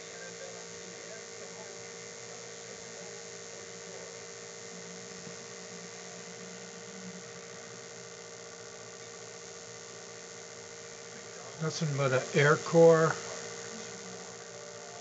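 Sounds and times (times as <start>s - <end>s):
electrical hum and buzz: 0.0s - 15.0s
even hiss: 8.0s - 15.0s.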